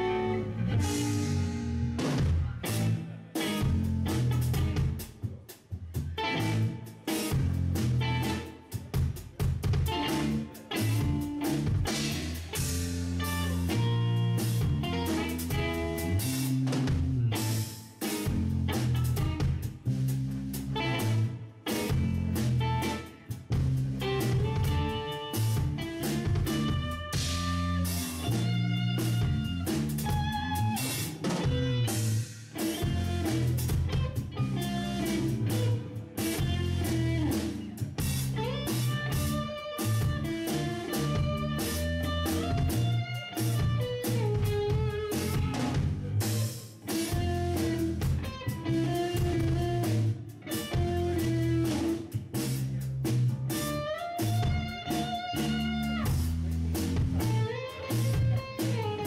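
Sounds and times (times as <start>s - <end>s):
electric guitar melodic line: 0.0s - 5.2s, 6.0s - 19.8s, 20.5s - 52.8s, 53.5s - 59.0s
deep bass line: 0.0s - 59.0s
drum kit hits: 0.8s - 5.1s.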